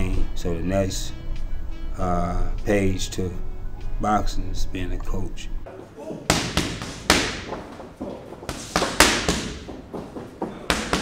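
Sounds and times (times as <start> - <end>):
gloved punches thudding: 6.3 - 7.8, 8.5 - 9.8, 10.7 - 11.0.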